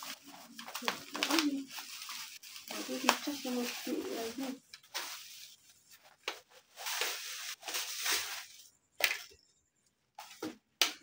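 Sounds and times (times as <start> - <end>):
bubble wrap rustling and crinkling: 0.0 - 8.7.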